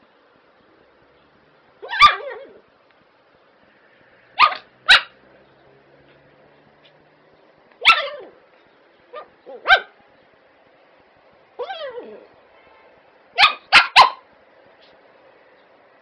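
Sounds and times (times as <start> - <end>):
dog barking: 1.8 - 2.5, 4.4 - 5.2, 7.8 - 8.4, 9.1 - 10.0, 13.4 - 14.3.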